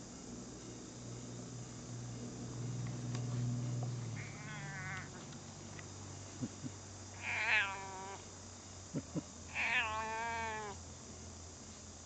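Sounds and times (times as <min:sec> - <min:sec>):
cat meowing: 0:04.2 - 0:05.2, 0:07.2 - 0:08.2, 0:09.5 - 0:10.8.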